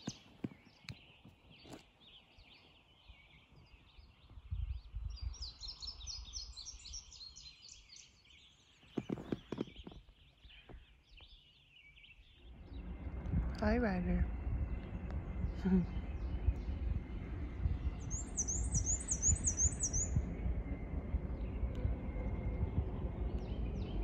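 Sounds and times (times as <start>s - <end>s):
songbirds singing: 0.0s - 24.0s
low rumble: 12.2s - 24.0s
rapid bird trill: 17.9s - 20.2s.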